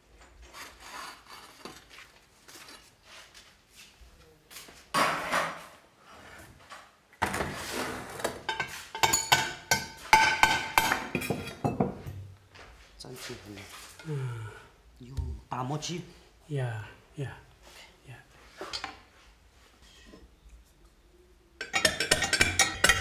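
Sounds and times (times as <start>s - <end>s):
porcelain scraping shelf: 0.4s - 1.9s, 5.0s - 9.3s
ceramic clinks ringing: 21.6s - 23.0s.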